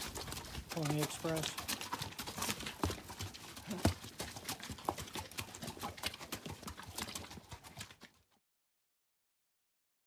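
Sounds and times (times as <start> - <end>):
hooves clip-clopping on rocks: 0.0 - 8.3.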